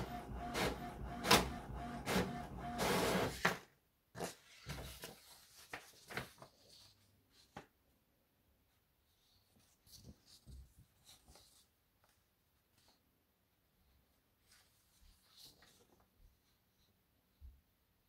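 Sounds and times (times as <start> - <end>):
inkjet printer running: 0.0 - 3.4
paper rustling: 3.3 - 7.7, 9.2 - 13.0, 14.4 - 16.6.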